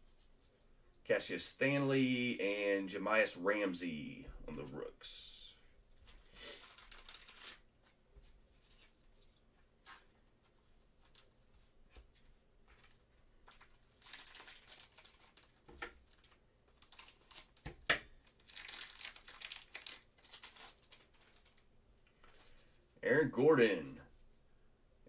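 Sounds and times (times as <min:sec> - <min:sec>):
wrapper tearing and crinkling: 0:06.5 - 0:07.6, 0:13.5 - 0:21.6.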